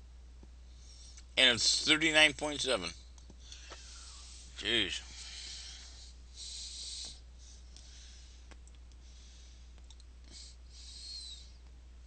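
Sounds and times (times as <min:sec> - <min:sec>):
steady low hum: 0:00.0 - 0:12.0
breathing into microphone: 0:03.4 - 0:11.6.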